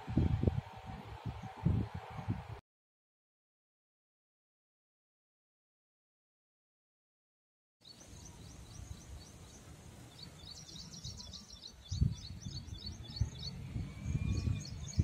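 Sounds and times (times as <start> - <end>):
low gusty rumble: 0.0 - 2.6, 8.2 - 15.0
birds chirping: 7.8 - 15.0.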